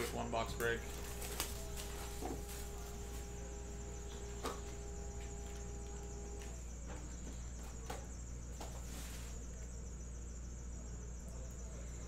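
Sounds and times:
shrink-wrap rustling: 0.0s - 5.7s
high steady whine: 0.0s - 10.5s
steady hum: 0.0s - 12.0s.

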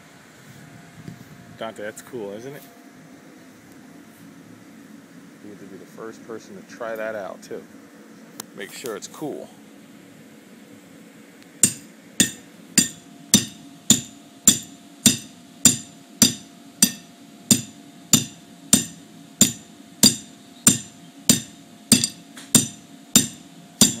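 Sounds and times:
hammer striking metal stake: 11.6s - 24.0s.

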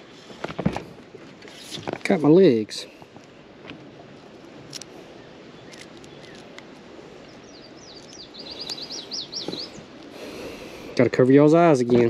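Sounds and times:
outdoor background hiss: 0.0s - 12.0s
songbird chirping: 4.7s - 10.9s.

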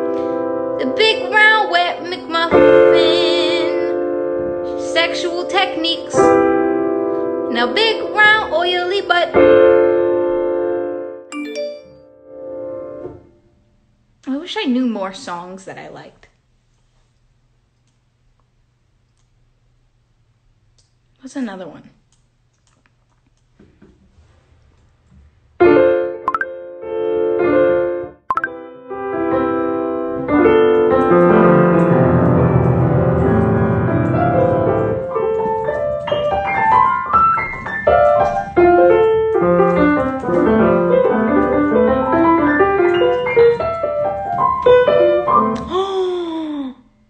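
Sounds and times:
piano playing: 0.0s - 13.4s, 25.6s - 45.8s.

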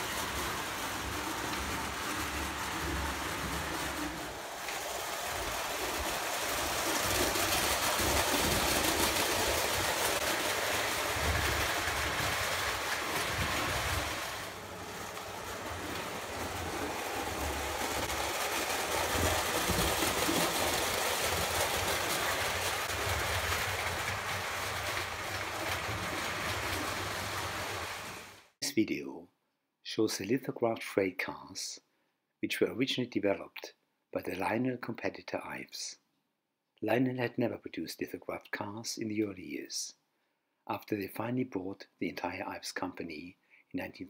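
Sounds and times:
toy train wheels on metal track: 0.0s - 28.4s.

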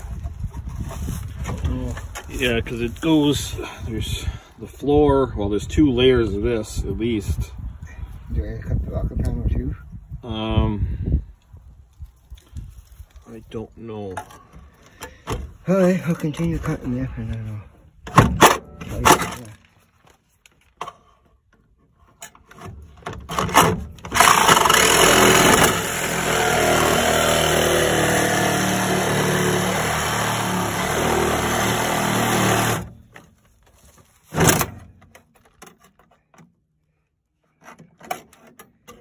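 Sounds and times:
reciprocating saw cutting sheet steel: 24.2s - 32.9s.

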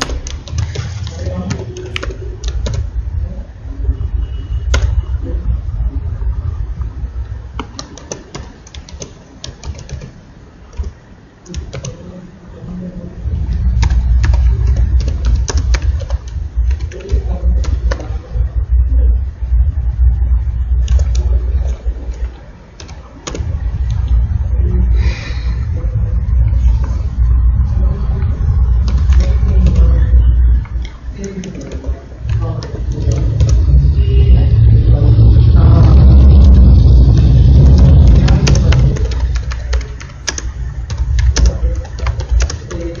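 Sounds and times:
computer keyboard typing: 0.0s - 3.0s, 7.5s - 12.0s, 13.7s - 18.2s, 20.8s - 24.1s, 28.8s - 30.0s, 30.6s - 33.8s, 37.4s - 43.0s
loud low rumble: 0.0s - 7.7s, 12.7s - 43.0s.

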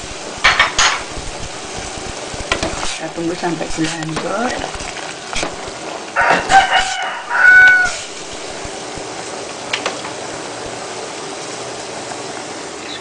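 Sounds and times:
steady low hiss: 0.0s - 13.0s
rooster crowing: 6.2s - 8.0s.

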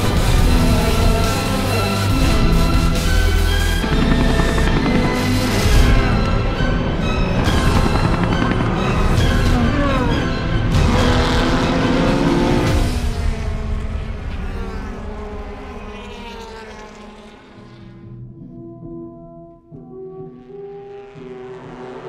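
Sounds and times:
race car engines passing: 9.6s - 18.2s.

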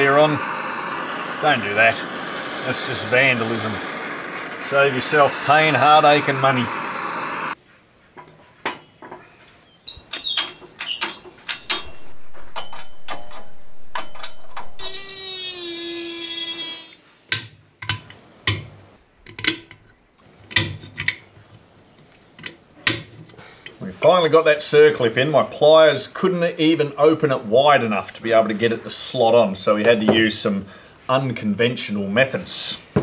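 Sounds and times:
drawn-out squealing tone: 0.0s - 7.6s, 9.9s - 17.1s
loud steady hiss: 0.0s - 7.6s, 10.6s - 19.1s, 20.2s - 33.0s.

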